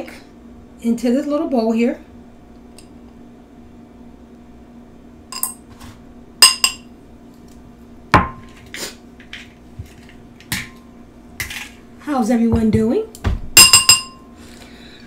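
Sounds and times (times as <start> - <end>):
glass bowls and utensils clinking: 13.6 - 14.3.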